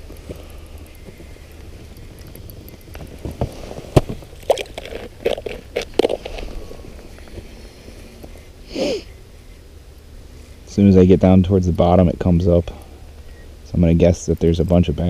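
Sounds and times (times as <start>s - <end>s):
crunching and scraping in snow: 0.0s - 8.9s.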